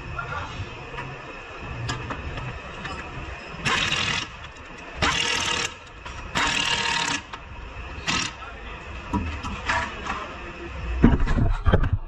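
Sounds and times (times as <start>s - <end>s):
air wrench bursts: 3.6s - 7.3s, 8.0s - 8.4s.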